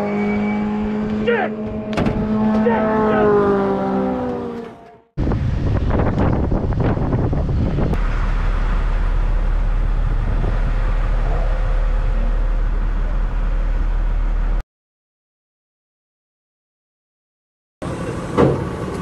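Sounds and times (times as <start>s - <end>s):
wind and road noise: 0.0s - 14.6s, 17.8s - 19.0s
steady low engine rumble: 5.2s - 14.6s.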